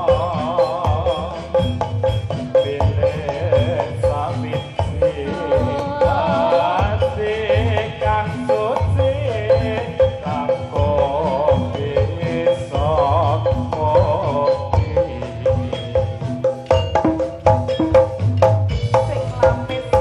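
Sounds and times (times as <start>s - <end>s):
ornamented melody with pitch slides: 5.0s - 7.5s
hand drum strokes: 13.7s - 20.0s.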